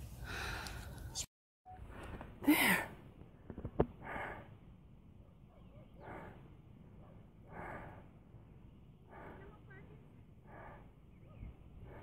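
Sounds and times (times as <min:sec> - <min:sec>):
person breathing hard: 0:00.2 - 0:01.0, 0:04.0 - 0:04.6, 0:06.0 - 0:06.6, 0:07.4 - 0:09.6, 0:10.4 - 0:11.1.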